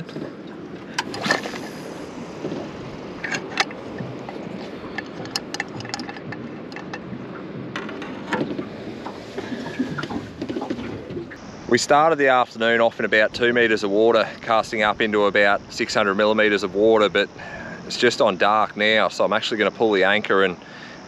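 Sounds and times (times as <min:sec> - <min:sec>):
wind and water wash: 0:00.0 - 0:21.0
fishing gear knocks and clicks: 0:02.5 - 0:11.3.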